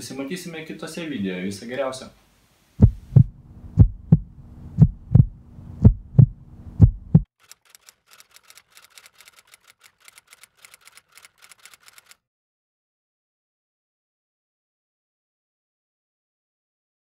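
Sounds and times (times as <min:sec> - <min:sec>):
heavy bass thumps: 0:02.8 - 0:07.3.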